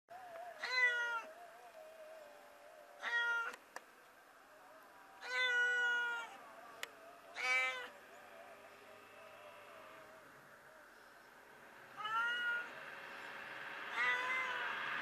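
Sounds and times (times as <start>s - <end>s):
kitten meowing: 3.0s - 3.6s, 5.2s - 6.4s, 12.0s - 12.7s, 13.9s - 14.6s.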